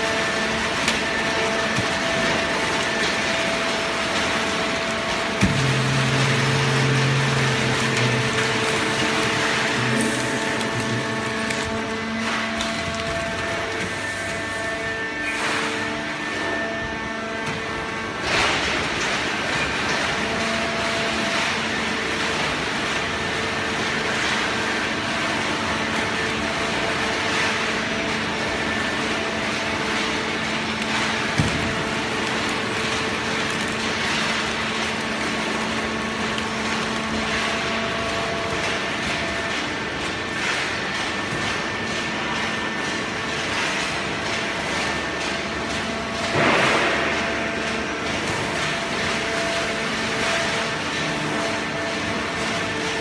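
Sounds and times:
hydraulic baler motor humming: 0.0s - 18.3s
rushing machine noise: 0.0s - 44.2s.

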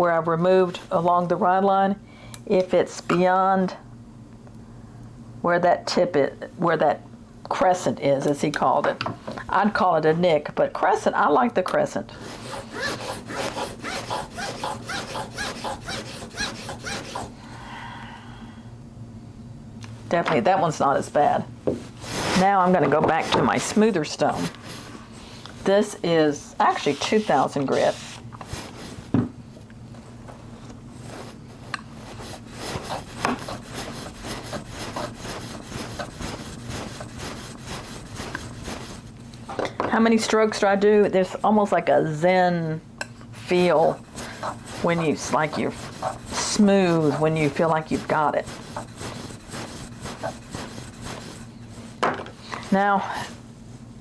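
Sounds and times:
blade rubbing on sharpening stone: 12.4s - 17.3s, 43.5s - 51.5s.

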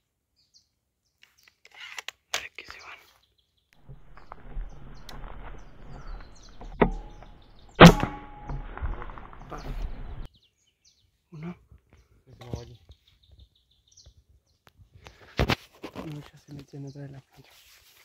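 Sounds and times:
air rifle shot crack: 3.8s - 8.8s
metallic ringing: 6.6s - 8.7s.

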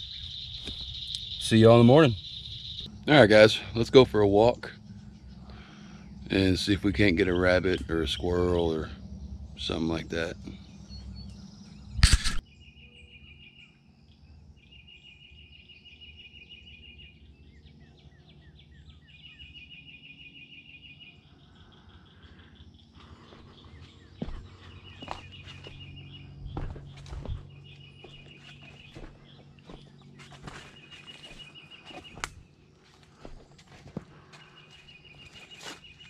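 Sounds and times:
footsteps on rock: 23.0s - 36.0s.

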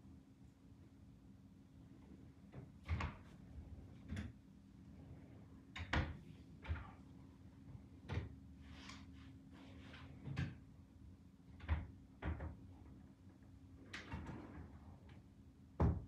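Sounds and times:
drawers and cupboard doors clunking: 13.8s - 15.1s.

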